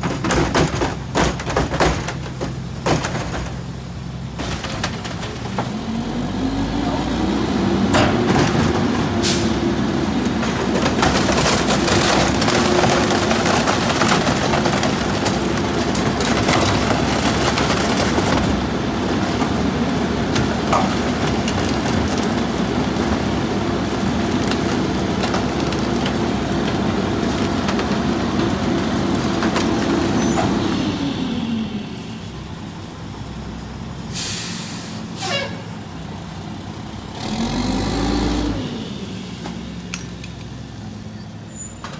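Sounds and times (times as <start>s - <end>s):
items crushed with knocks and cracks: 0.0s - 3.7s, 4.3s - 6.0s, 10.3s - 23.3s, 24.0s - 30.4s
garbage truck diesel engine revving: 0.0s - 39.9s
sharp hiss of air: 34.1s - 35.1s.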